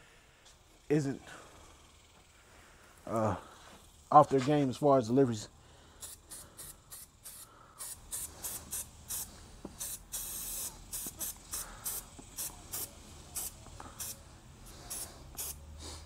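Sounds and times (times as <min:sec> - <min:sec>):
spray bottle squirts hissing: 0:06.0 - 0:14.2, 0:14.8 - 0:15.8.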